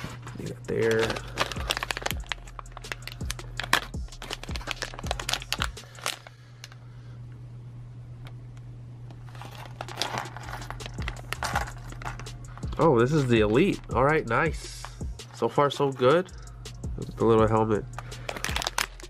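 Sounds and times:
foil packet crinkling: 0.0 - 6.8, 9.2 - 13.6, 18.0 - 19.0.

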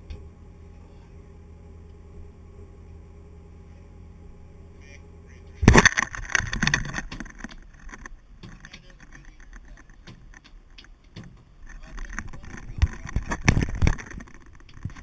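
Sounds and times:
fish flopping on wooden deck: 5.7 - 15.0.

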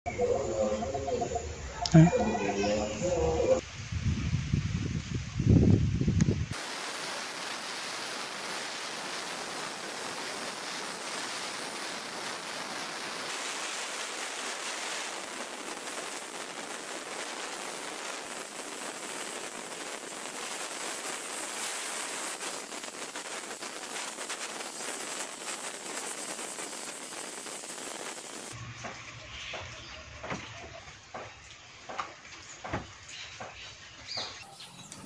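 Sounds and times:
sandblaster hissing: 6.5 - 28.6.

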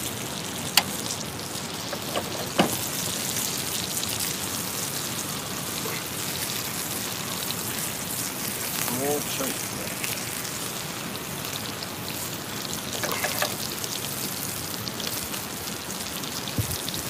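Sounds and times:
steak sizzling in a frying pan: 0.0 - 17.0
light knocks: 1.9 - 2.9.

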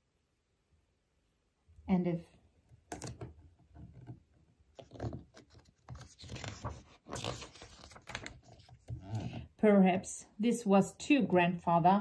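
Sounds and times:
book page turning: 4.7 - 9.5.

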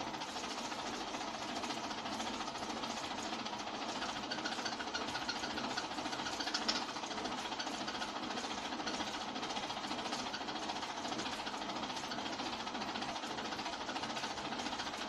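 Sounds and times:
film projector clattering: 0.0 - 15.0.

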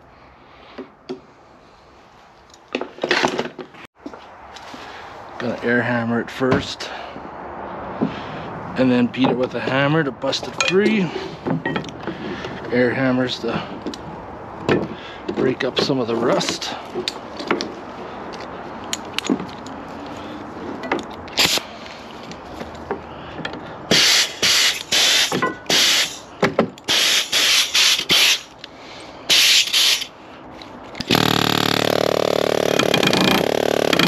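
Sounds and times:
pneumatic air hammer: 21.3 - 21.7, 23.9 - 28.6, 29.3 - 30.2, 30.9 - 34.0.

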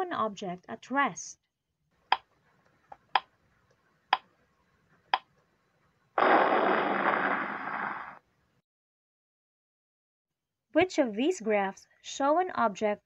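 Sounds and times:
loud hissing burst: 6.2 - 8.2.

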